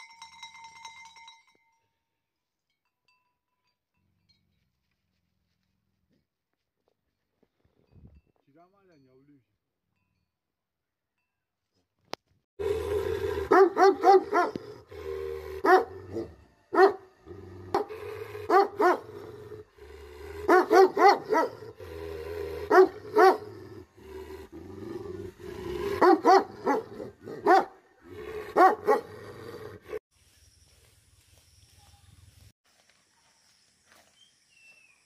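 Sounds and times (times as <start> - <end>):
dog barking: 13.5 - 14.6, 15.6 - 17.1, 17.7 - 19.1, 20.4 - 21.7, 22.7 - 23.6, 26.0 - 27.8, 28.5 - 29.1.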